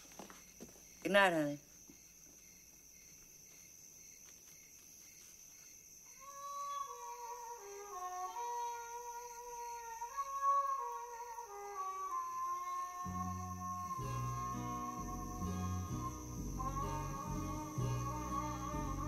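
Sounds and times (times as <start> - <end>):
faint film soundtrack: 6.2 - 19.0
soft music with sustained chords: 6.4 - 19.0.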